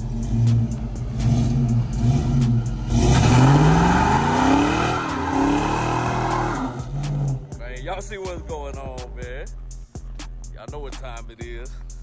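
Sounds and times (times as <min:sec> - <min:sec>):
car engine revving: 0:00.0 - 0:08.8.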